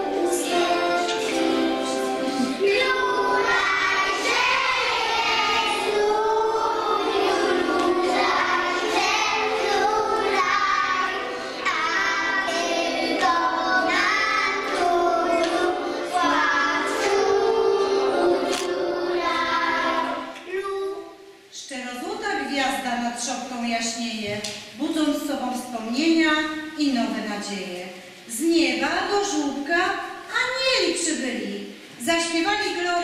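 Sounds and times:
children singing in unison: 0.0s - 20.4s.

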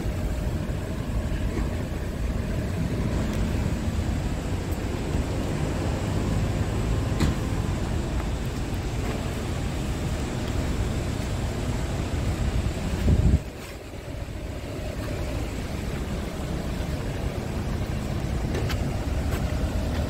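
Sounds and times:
diesel engine idling: 0.0s - 20.0s.

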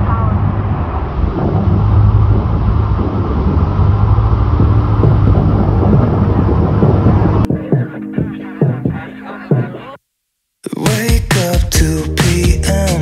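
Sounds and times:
boat engine humming: 0.0s - 9.4s.

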